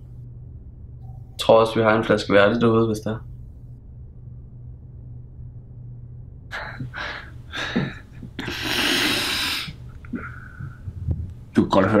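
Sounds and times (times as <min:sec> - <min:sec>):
man breathing heavily: 0:06.5 - 0:11.1.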